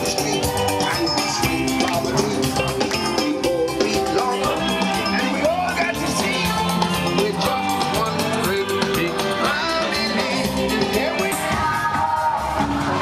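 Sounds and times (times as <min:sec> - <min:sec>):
band with steady drum beat: 0:00.0 - 0:13.0
person singing: 0:00.0 - 0:13.0.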